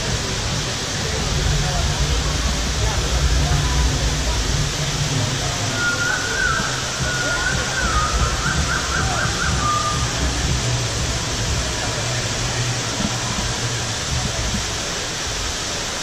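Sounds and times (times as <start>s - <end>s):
rushing falling water: 0.0s - 16.0s.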